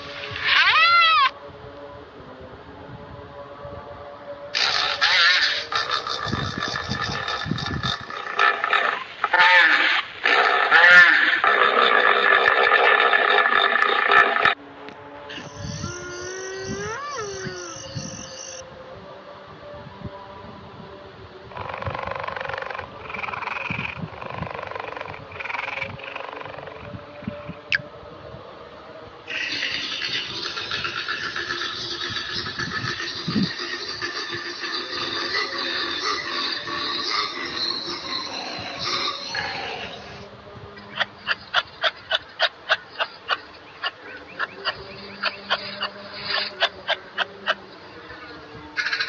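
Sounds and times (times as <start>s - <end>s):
cheetah buzzing rattling call: 0.0s - 1.3s, 4.6s - 14.6s, 15.3s - 18.6s, 21.6s - 26.9s, 29.3s - 40.2s, 40.9s - 49.0s
kangaroo clicking calls: 0.4s - 1.3s, 4.6s - 7.8s, 40.9s - 47.6s, 48.8s - 49.0s.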